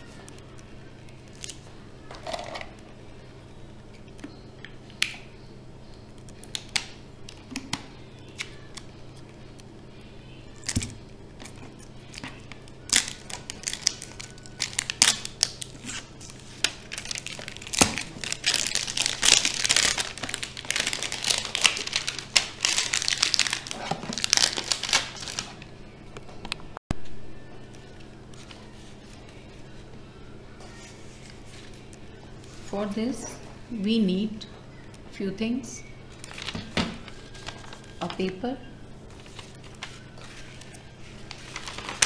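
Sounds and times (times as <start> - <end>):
plastic label crinkling: 10.6 - 25.6, 36.1 - 38.4, 39.0 - 42.0.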